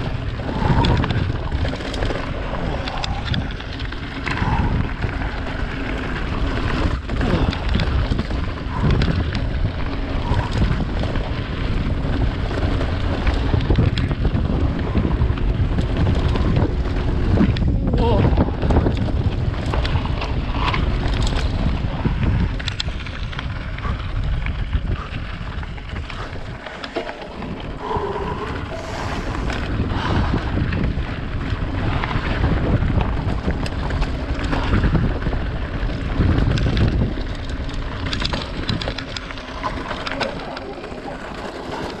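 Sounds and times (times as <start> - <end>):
bike rattling: 0.0 - 42.0
tyres crunching over gravel: 0.0 - 42.0
wind buffeting microphone: 0.0 - 42.0.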